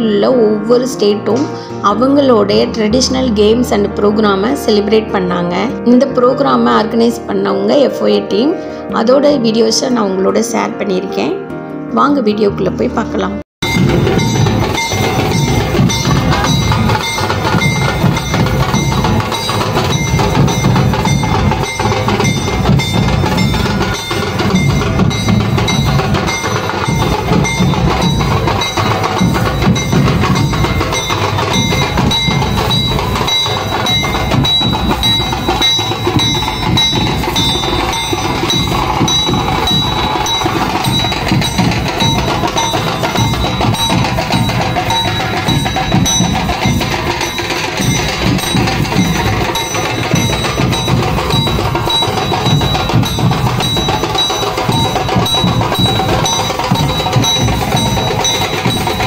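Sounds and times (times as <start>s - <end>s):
barrel drums beaten fast: 13.6s - 59.0s
metal cymbals ringing: 13.6s - 59.0s.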